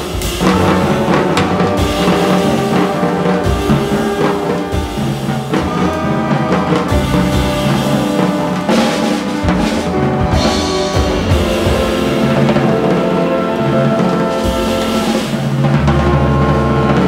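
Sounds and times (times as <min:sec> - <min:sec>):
drum kit: 0:00.0 - 0:17.0
horn section: 0:00.0 - 0:17.0.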